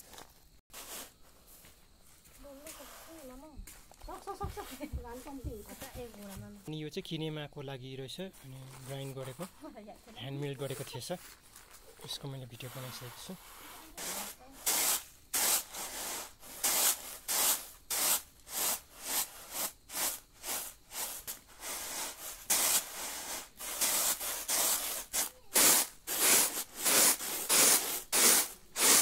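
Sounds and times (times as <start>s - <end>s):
grain swishing in bamboo trays: 0.0s - 6.6s, 8.2s - 29.0s.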